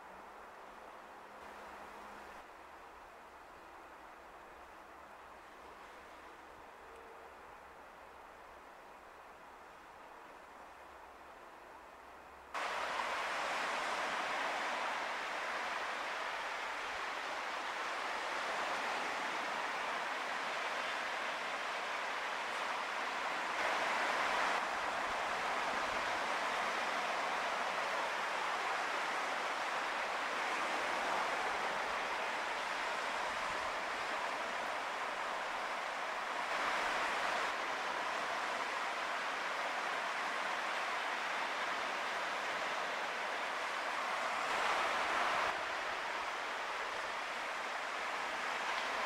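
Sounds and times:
small waves washing: 0:12.6 - 0:49.0.

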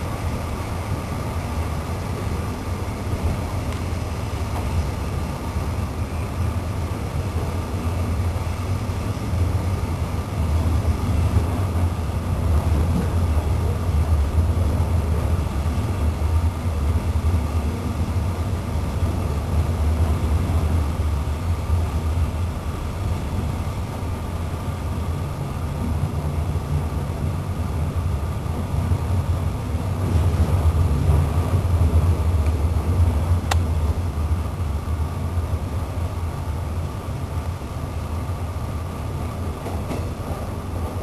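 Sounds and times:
train wheels rumbling on rails: 0:00.0 - 0:41.0.

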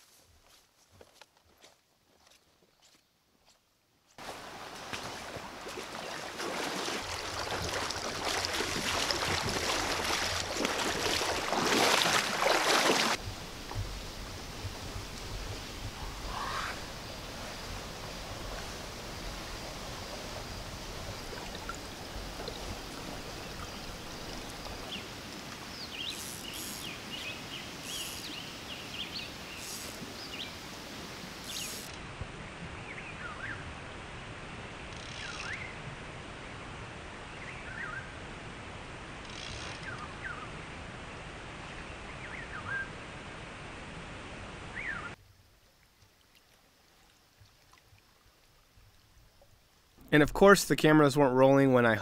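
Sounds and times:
stream flowing: 0:04.2 - 0:32.6, 0:33.7 - 0:52.0
songbirds chirping: 0:04.3 - 0:31.9, 0:44.7 - 0:45.2.

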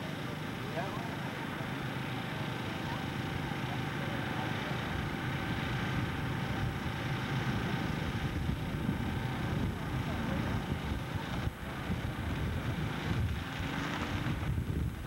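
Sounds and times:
tractor engines running: 0:00.0 - 0:15.0.

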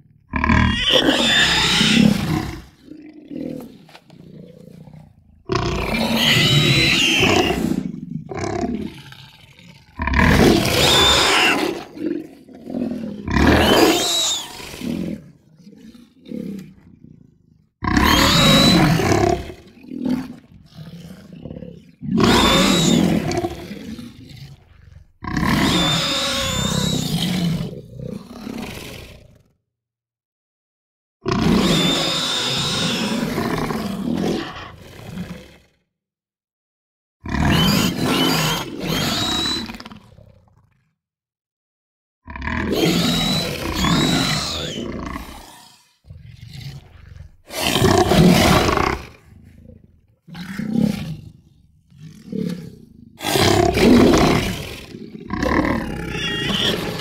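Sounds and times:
dinosaur roars: 0:00.3 - 0:29.5, 0:31.3 - 0:35.8, 0:42.3 - 0:57.0
low growls: 0:42.3 - 0:57.0.

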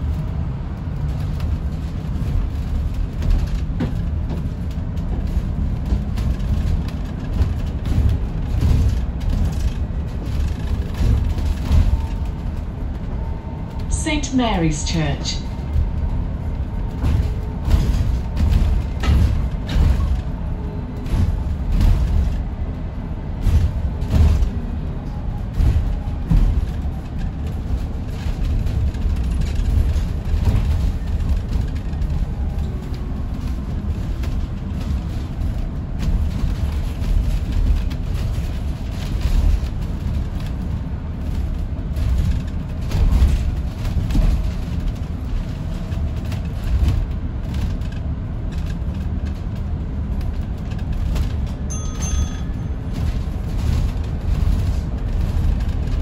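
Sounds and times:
bus road rumble: 0:00.0 - 0:56.0
knocks and bumps: 0:15.6 - 0:22.6.

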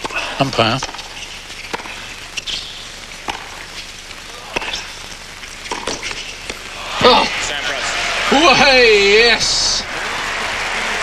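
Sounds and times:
tennis balls struck by rackets: 0:00.8 - 0:03.7, 0:05.6 - 0:06.7.

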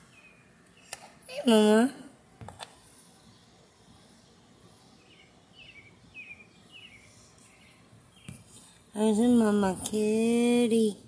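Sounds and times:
bird chirping: 0:00.0 - 0:01.0, 0:04.9 - 0:08.8.

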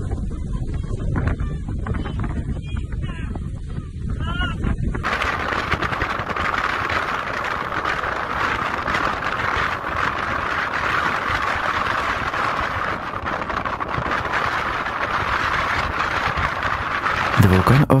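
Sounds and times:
volcanic eruption rushing hiss: 0:05.0 - 0:18.0.

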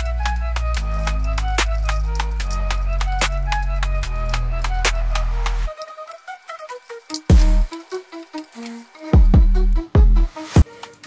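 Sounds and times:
electronic music: 0:00.0 - 0:11.0
deep bass: 0:07.3 - 0:07.7, 0:09.2 - 0:10.3
drum beat: 0:07.3 - 0:07.7, 0:09.2 - 0:10.4.

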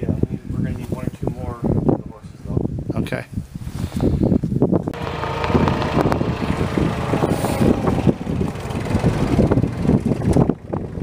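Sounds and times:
tractor engine running: 0:04.9 - 0:11.0.

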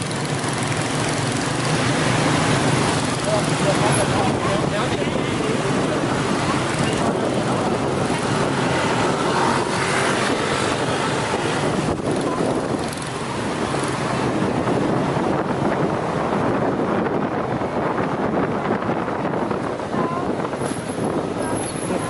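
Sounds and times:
motorbike engine: 0:00.0 - 0:15.4
motor scooter traffic: 0:00.0 - 0:22.0
wind rushing on microphone: 0:00.0 - 0:22.0.

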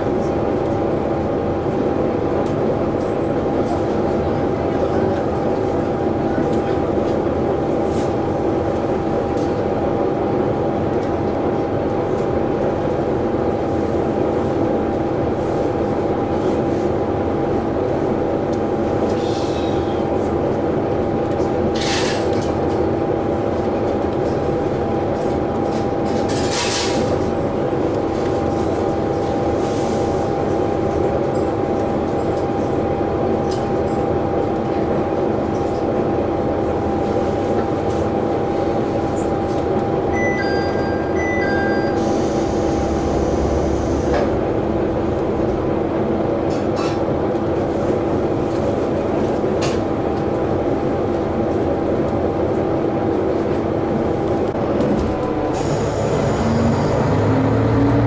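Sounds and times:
diesel train engine idling: 0:27.1 - 0:49.2, 0:51.9 - 0:58.0.

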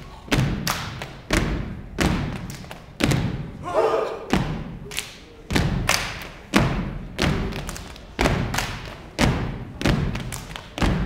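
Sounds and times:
stomping on wooden stage: 0:00.3 - 0:03.6, 0:05.5 - 0:11.0.

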